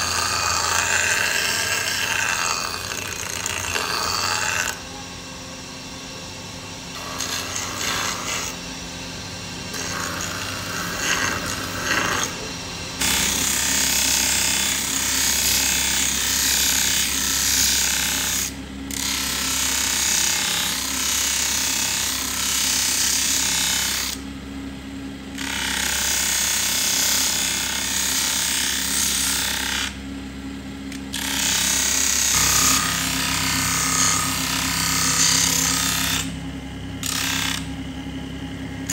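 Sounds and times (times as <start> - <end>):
blade grinding on abrasive wheel: 0.0 - 4.8, 6.9 - 8.6, 9.7 - 24.2, 31.1 - 36.4
grinder motor hum: 0.0 - 38.9.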